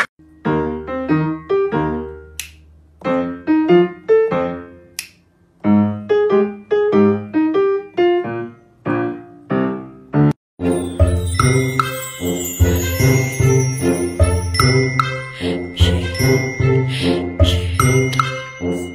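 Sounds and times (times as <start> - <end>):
light keyboard melody: 0.2 - 2.4, 3.0 - 5.0, 5.6 - 18.9
sharp clicks: 5.0 - 5.2.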